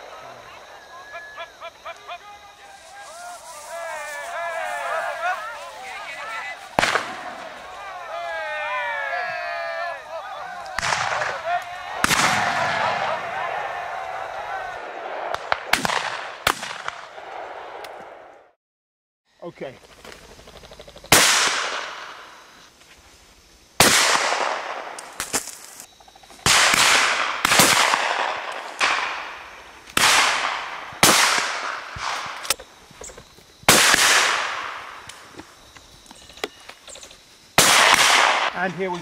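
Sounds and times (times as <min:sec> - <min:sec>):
distant gunshots: 0:06.7 - 0:07.6, 0:10.7 - 0:13.7, 0:14.8 - 0:18.3, 0:26.5 - 0:29.4, 0:30.0 - 0:32.4, 0:33.7 - 0:35.0, 0:37.6 - 0:38.6
shotgun shots echoing: 0:06.8 - 0:07.6, 0:10.7 - 0:13.6, 0:14.9 - 0:18.2, 0:21.1 - 0:22.2, 0:23.8 - 0:25.4, 0:26.5 - 0:29.4, 0:30.0 - 0:32.5, 0:33.7 - 0:35.0, 0:37.6 - 0:38.7.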